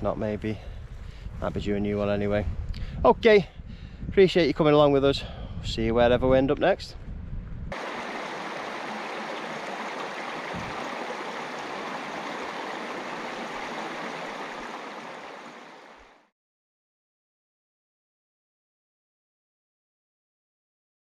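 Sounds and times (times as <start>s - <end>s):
stream flowing over rocks: 7.8s - 16.2s.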